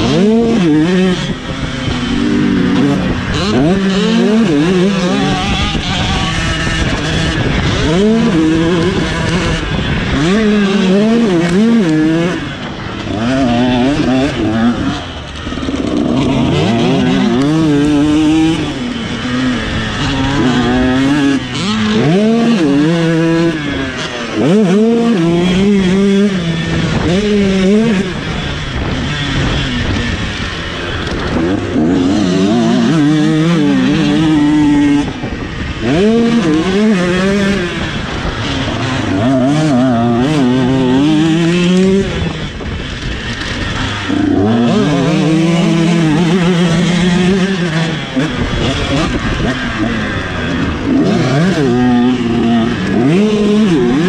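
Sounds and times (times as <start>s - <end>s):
motocross engine revving: 0.0s - 54.0s.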